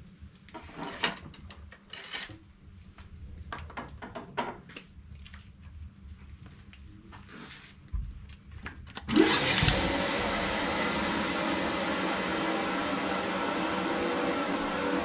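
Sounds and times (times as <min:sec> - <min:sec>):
electric blower running: 0:09.1 - 0:15.0.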